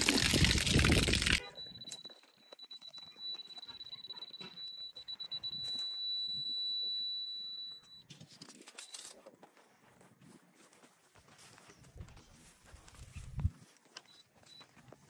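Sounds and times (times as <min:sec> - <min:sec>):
high-pitched electronic tone: 0:00.2 - 0:08.0.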